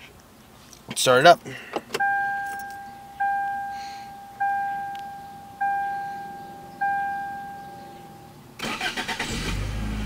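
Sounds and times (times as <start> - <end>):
car engine starting and idling: 1.8 - 10.0
car warning chime: 2.0 - 9.0.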